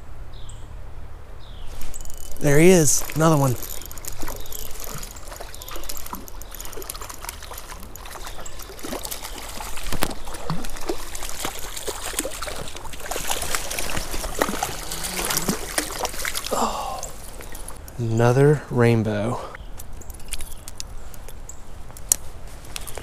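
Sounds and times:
water splashing and trickling: 1.7 - 18.4.

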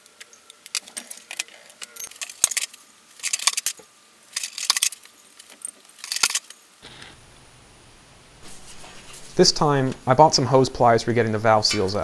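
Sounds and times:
metal parts clinking together: 0.3 - 6.6.

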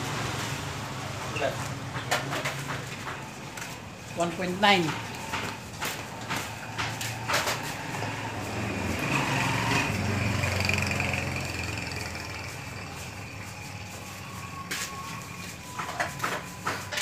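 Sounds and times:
vehicle engine passing by: 0.0 - 2.9, 6.2 - 15.8.

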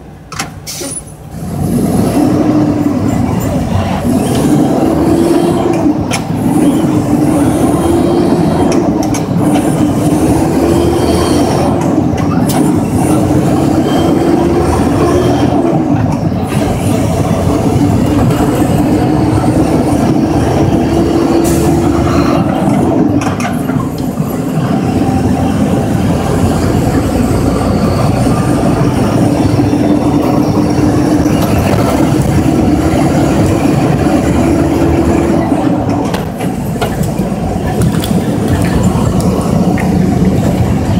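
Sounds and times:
truck diesel engine rumbling: 0.0 - 40.9.

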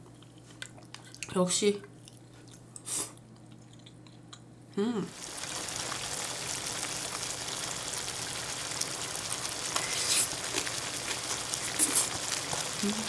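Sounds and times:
stew simmering and bubbling: 5.1 - 13.0.

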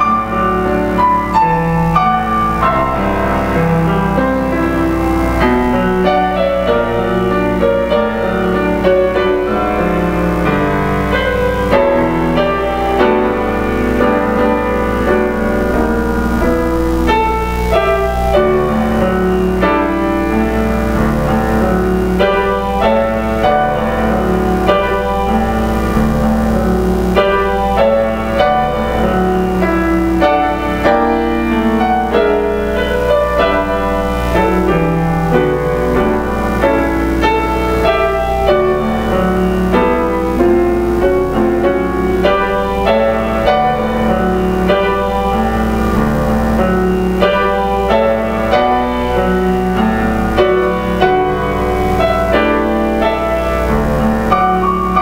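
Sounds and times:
solo piano piece: 0.0 - 55.0.

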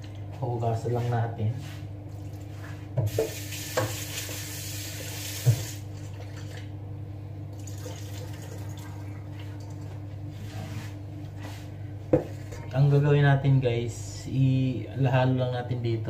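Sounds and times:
tap running into sink: 3.0 - 4.4, 5.2 - 5.8.

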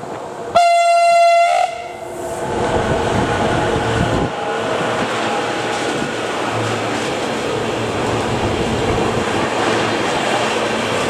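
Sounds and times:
freight train passing: 0.0 - 11.0
locomotive horn blast: 0.5 - 2.1.

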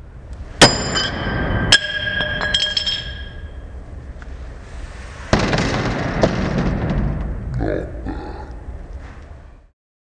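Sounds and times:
sledgehammer striking steel vise: 0.6 - 3.6.

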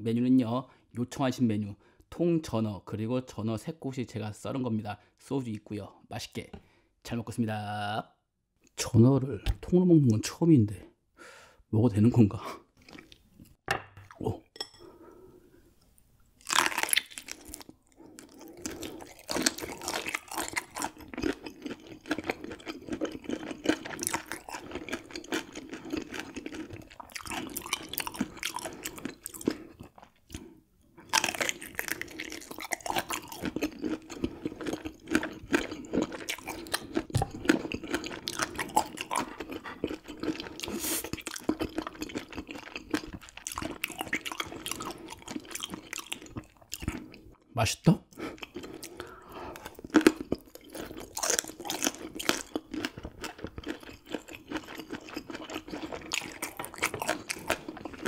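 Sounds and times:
chewing and crunching fish bones: 16.4 - 47.4, 48.2 - 58.0.

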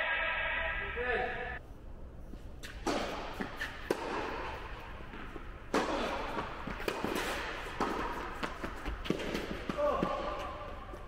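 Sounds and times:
tennis ball bouncing: 2.6 - 10.8
racket hitting tennis ball: 2.6 - 11.0.

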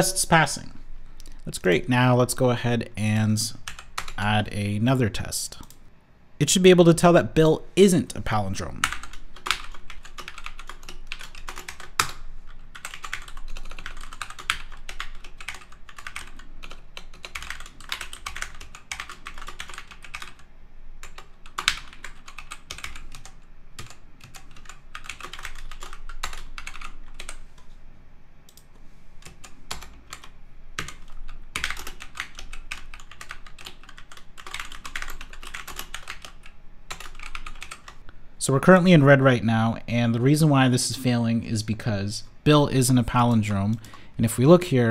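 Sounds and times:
typing on computer keyboard: 8.8 - 27.4, 28.5 - 38.0.

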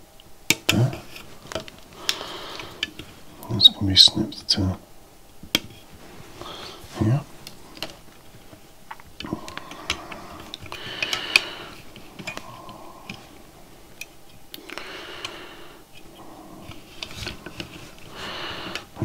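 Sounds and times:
rustling: 5.6 - 15.0, 15.9 - 19.0.

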